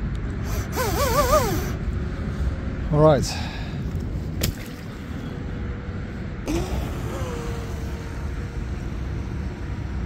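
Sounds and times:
electric motor whining: 6.5 - 10.0.

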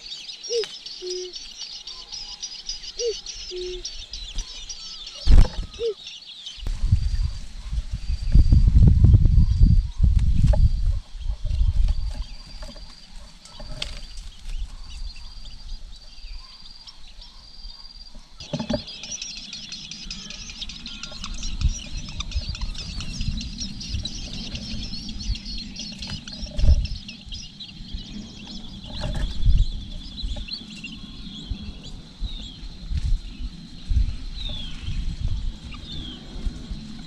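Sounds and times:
nestling birds cheeping: 0.0 - 37.0
rustling in nest: 28.0 - 30.7.

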